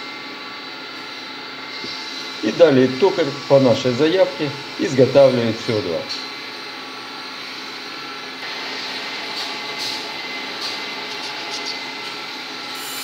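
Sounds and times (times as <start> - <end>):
lathe humming: 0.0 - 13.0
cutter hissing on metal: 8.4 - 13.0.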